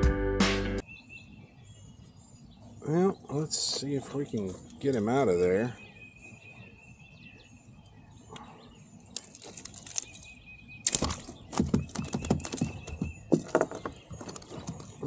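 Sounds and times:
fish thrashing and splashing: 0:09.1 - 0:13.6.

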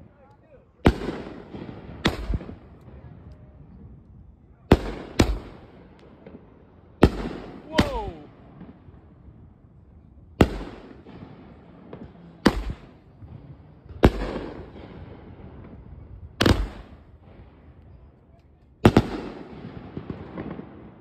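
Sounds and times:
firework crackle and echo: 0:00.0 - 0:21.0
firework bangs: 0:00.8 - 0:03.1, 0:04.7 - 0:09.4, 0:10.4 - 0:17.7, 0:18.8 - 0:21.0.

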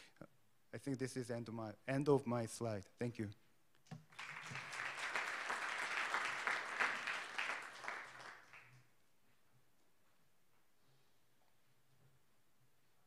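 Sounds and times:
audience applauding: 0:04.1 - 0:08.8.

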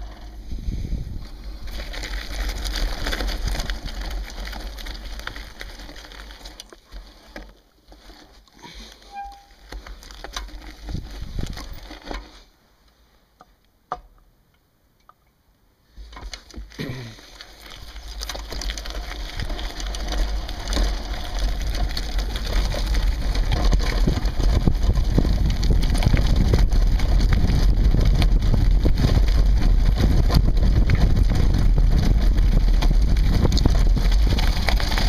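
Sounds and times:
bike rattling: 0:00.0 - 0:12.6, 0:16.0 - 0:35.0
tyres crunching on gravel: 0:00.9 - 0:12.5, 0:16.0 - 0:35.0.

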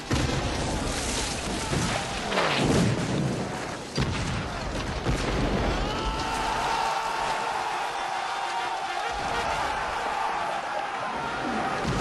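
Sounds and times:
cannon fire and explosions: 0:00.0 - 0:07.4, 0:11.4 - 0:12.0
men shouting: 0:05.9 - 0:12.0.

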